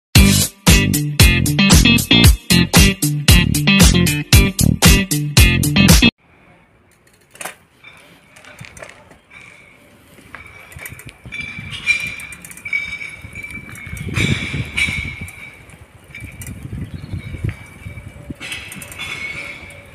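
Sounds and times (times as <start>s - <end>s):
upbeat intro music: 0.2s - 6.1s.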